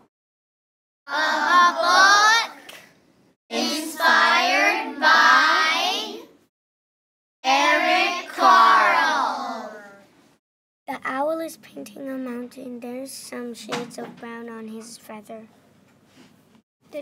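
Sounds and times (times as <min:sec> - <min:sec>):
child's sing-song voice: 0:03.5 - 0:06.4, 0:07.5 - 0:10.0.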